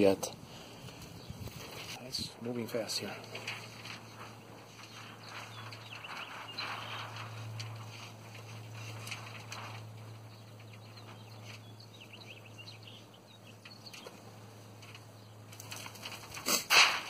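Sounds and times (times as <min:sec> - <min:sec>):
low hum: 0:00.4 - 0:16.4
faint bird chirps: 0:04.2 - 0:08.0.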